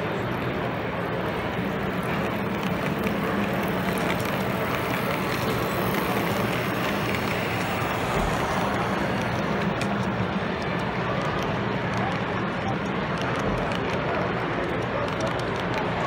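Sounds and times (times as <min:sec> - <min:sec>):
exhibition hall crowd noise: 0:00.0 - 0:16.0
model train motor humming: 0:00.6 - 0:11.4.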